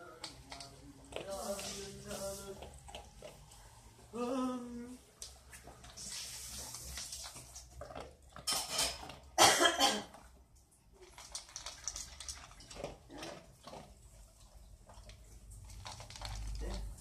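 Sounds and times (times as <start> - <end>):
dog chewing: 0.1 - 4.1, 6.6 - 9.4, 10.1 - 17.0
metal bowl clinking on tile floor: 8.4 - 9.2.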